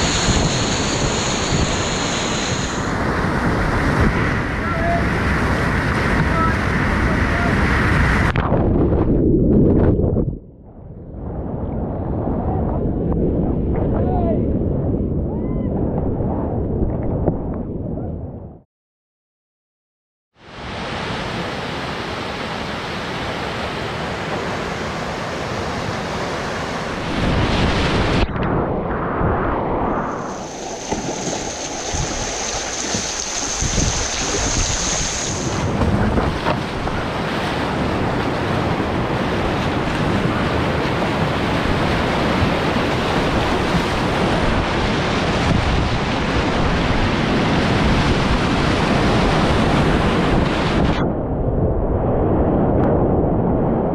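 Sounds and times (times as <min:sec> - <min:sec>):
whitewater rushing: 0:00.0 - 0:08.2, 0:30.2 - 0:50.7
wind buffeting microphone: 0:00.0 - 0:18.6, 0:25.6 - 0:53.9.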